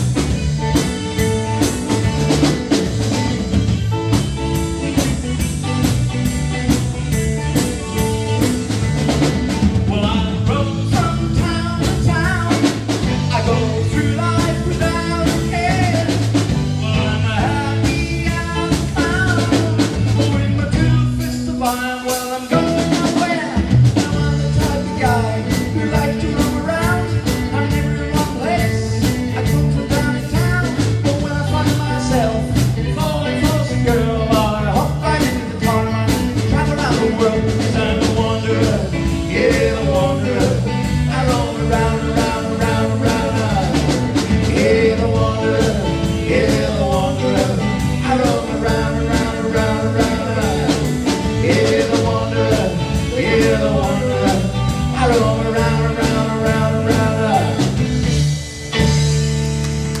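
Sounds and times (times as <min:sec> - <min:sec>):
rock band playing live: 0:00.0 - 1:00.0
person singing: 0:09.8 - 0:57.8.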